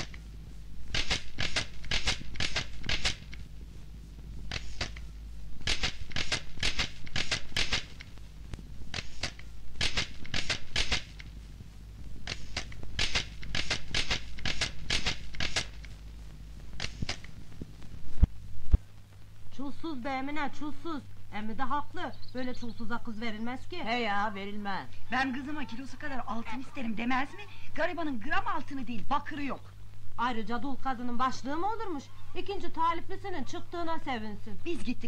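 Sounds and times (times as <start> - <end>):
steady low hum: 0.0 - 35.0
rapid mechanical clacking: 0.9 - 3.5, 4.4 - 8.1, 8.9 - 11.3, 12.2 - 16.0.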